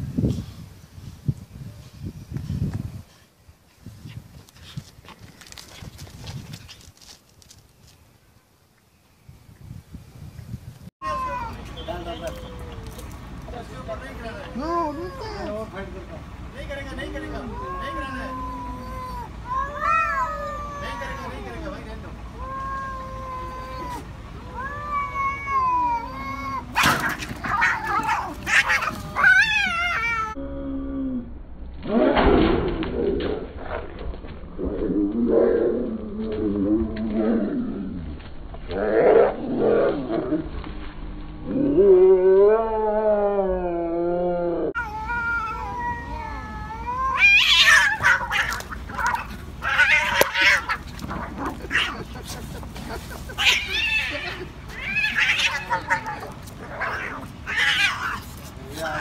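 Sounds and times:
cats yowling: 17.2 - 30.4, 41.7 - 52.3, 53.3 - 59.0
cats screeching harshly: 17.4 - 21.4, 22.4 - 30.4, 44.8 - 52.0, 53.3 - 59.0.

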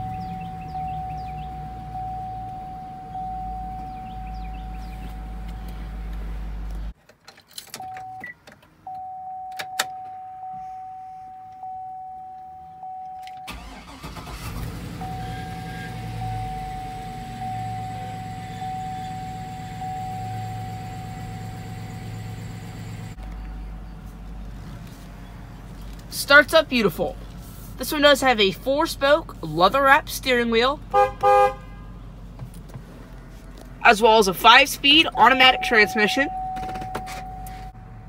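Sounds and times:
dashboard chime dinging: 0.0 - 5.7, 15.1 - 22.2, 34.8 - 37.8
truck engine starting and idling: 0.0 - 7.9, 12.8 - 38.0.

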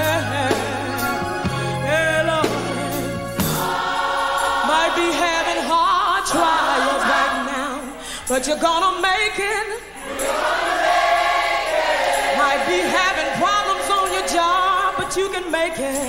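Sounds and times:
band with drums: 0.0 - 4.8
choir singing: 0.0 - 8.0, 9.9 - 16.0
woman singing with vibrato: 0.0 - 10.4, 12.2 - 16.0.

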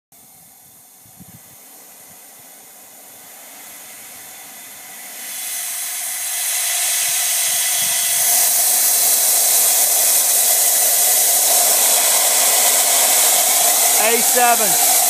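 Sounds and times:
pressure hissing from valve: 0.2 - 15.0.

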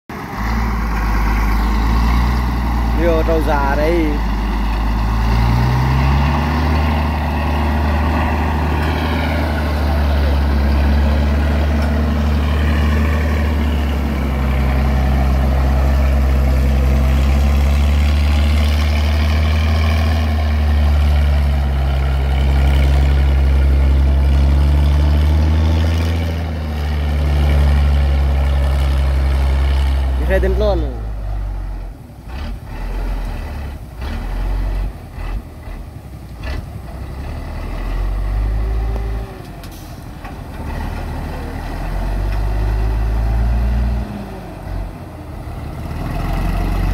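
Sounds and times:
truck engine under load: 0.1 - 46.9.

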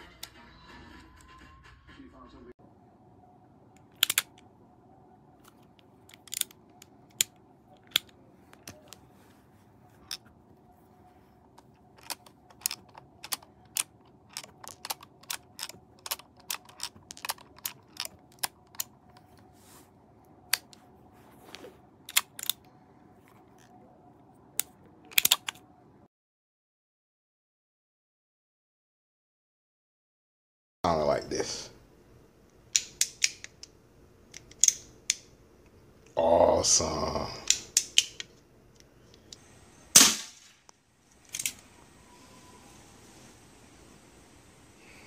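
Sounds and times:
faint steady hum: 2.4 - 26.1, 30.9 - 45.0
cartridge shells handled: 6.0 - 7.3, 11.6 - 19.3, 37.5 - 39.4, 41.1 - 41.6.

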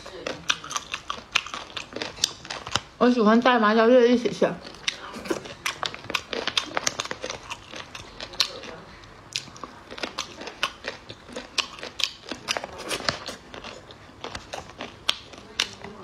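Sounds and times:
chewing and crunching: 0.0 - 16.0.

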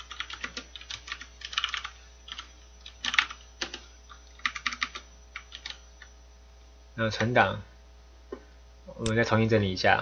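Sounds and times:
computer keyboard typing: 0.0 - 6.1.

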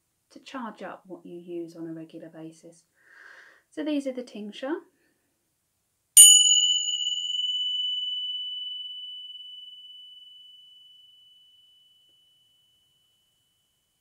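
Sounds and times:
tingsha cymbals ringing: 6.2 - 13.3.

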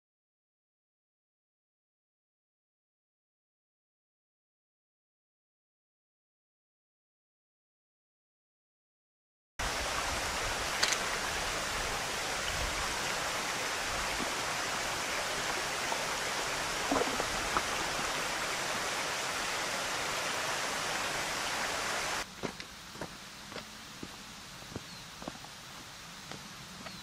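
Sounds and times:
water rushing over rocks: 9.6 - 22.3.

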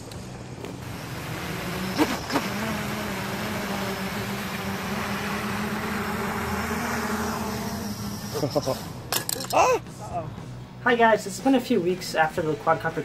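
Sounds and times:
quadcopter motors buzzing: 0.0 - 9.8.

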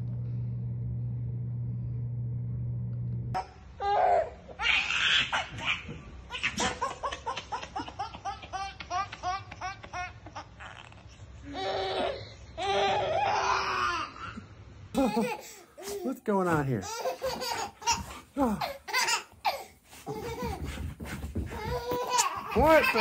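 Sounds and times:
baby laughing: 3.4 - 14.3, 15.0 - 16.1, 16.9 - 20.8, 21.5 - 23.0.

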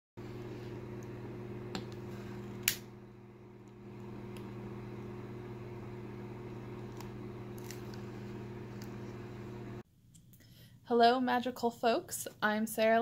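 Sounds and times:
steady low hum: 0.2 - 9.8.

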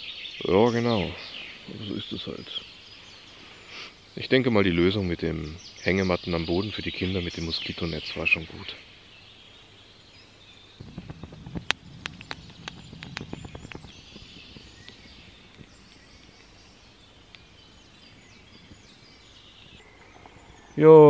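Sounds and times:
faint birdsong: 0.0 - 21.0
rustling with sharp clicks: 10.8 - 16.6.

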